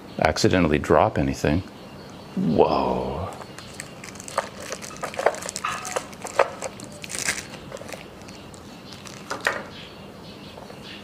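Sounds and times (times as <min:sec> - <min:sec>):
camera case handling clicks and rustles: 0:03.3 - 0:09.6.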